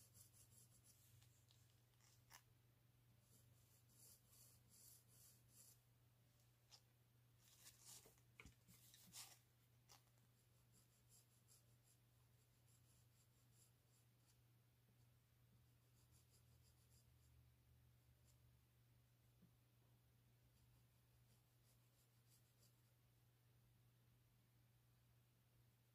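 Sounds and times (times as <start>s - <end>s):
pencil scratching on paper: 0.0s - 2.5s, 3.2s - 5.8s, 7.4s - 14.4s, 15.0s - 17.4s, 18.0s - 18.5s, 20.5s - 23.0s.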